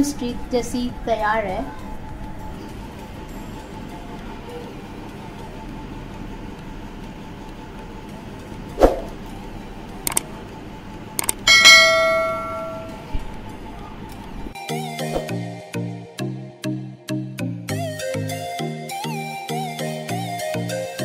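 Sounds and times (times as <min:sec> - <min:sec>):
sharp swish: 0:08.8 - 0:09.1
clicks: 0:10.1 - 0:10.3, 0:11.2 - 0:11.4
bright bell ding: 0:11.5 - 0:13.0.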